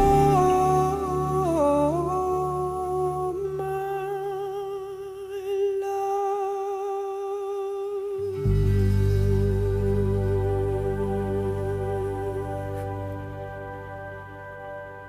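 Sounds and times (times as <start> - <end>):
soft low accompaniment: 0.0 - 5.2, 8.2 - 15.0
hummed vocal note: 0.0 - 14.2.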